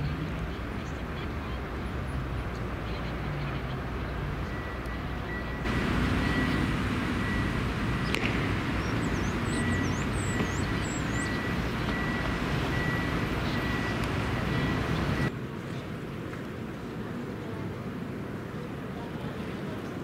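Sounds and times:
traffic and machinery rumble: 0.0s - 20.0s
high chirps: 5.6s - 15.3s.

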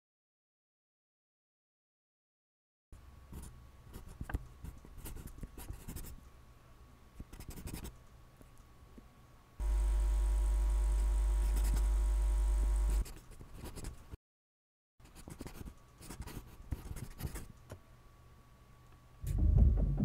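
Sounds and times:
pencil scratching on paper: 3.4s - 6.2s, 7.2s - 7.9s, 11.4s - 11.9s, 12.9s - 14.1s, 15.0s - 17.5s.

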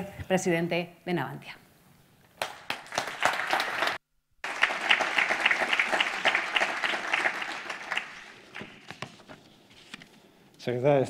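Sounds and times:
audience applauding: 2.4s - 9.0s.

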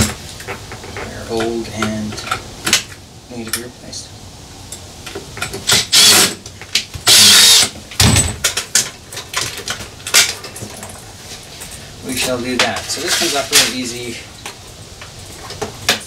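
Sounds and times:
loud rasping noises: 5.7s - 6.4s, 7.0s - 7.8s.

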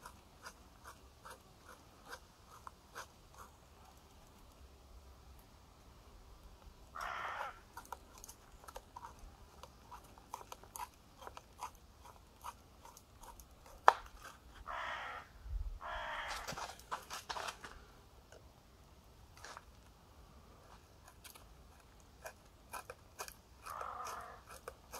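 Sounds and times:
sharp crack: 13.8s - 14.2s
knife reamer grinding into bone: 22.2s - 24.9s.

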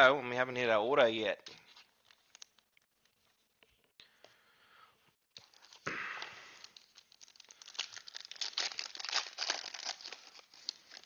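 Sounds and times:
foil wrapper crinkling: 5.4s - 11.0s
foil wrapper tearing: 6.6s - 11.0s.

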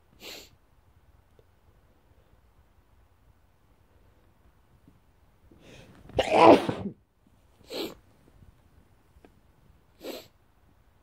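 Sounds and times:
man sneezing: 6.2s - 7.0s.

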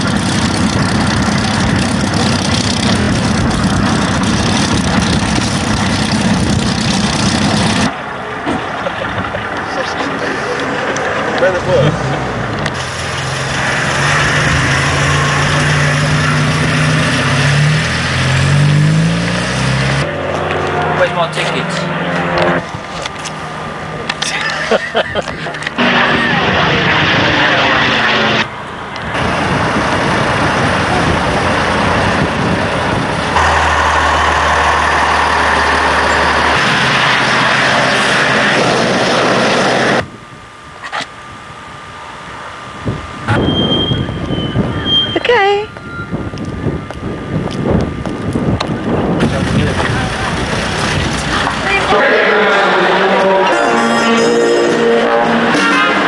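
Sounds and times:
heavy trucks driving past: 0.0s - 24.2s, 25.4s - 40.0s, 49.2s - 56.0s
low hum: 0.0s - 56.0s
pickup engine driving past: 33.3s - 40.0s.

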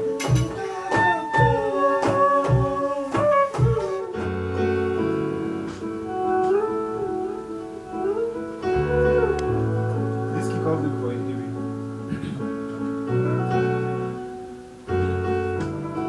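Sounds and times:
drum beat: 0.0s - 4.5s
held chords with sliding melody: 0.0s - 16.0s.

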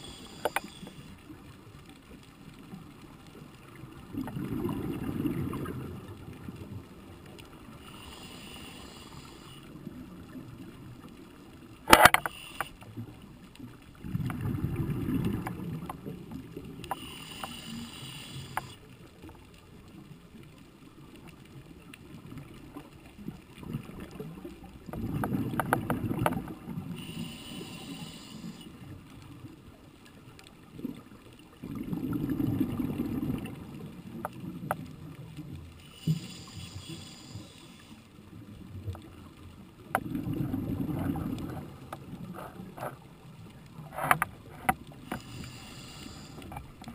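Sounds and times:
regulator inhalation hiss: 0.0s - 1.1s, 7.8s - 9.7s, 12.2s - 12.8s, 16.9s - 18.8s, 27.0s - 28.7s, 35.8s - 38.1s, 45.2s - 46.5s
exhaled bubbles: 4.0s - 6.6s, 14.0s - 16.8s, 23.6s - 27.4s, 31.6s - 34.6s, 40.0s - 42.6s.

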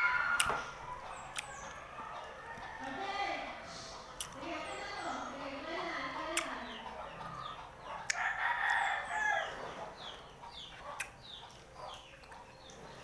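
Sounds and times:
rooster crowing: 8.1s - 9.6s.

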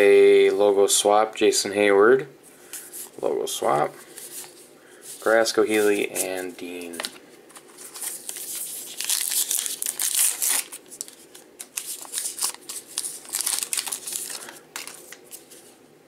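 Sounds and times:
foil wrapper tearing and crinkling: 7.8s - 15.4s.

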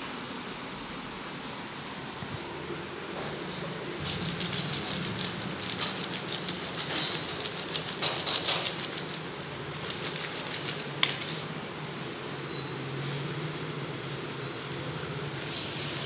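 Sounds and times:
plastic pouch crinkling on tile: 4.0s - 11.4s.

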